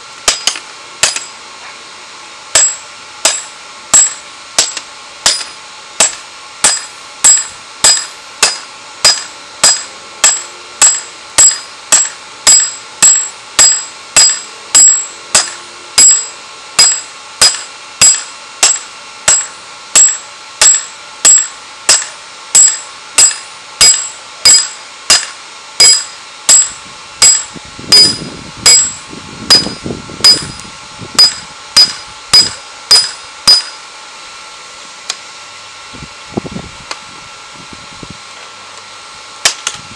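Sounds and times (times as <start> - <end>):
hammer striking hot steel on anvil: 0.2 - 1.4, 2.5 - 30.6, 31.2 - 33.8.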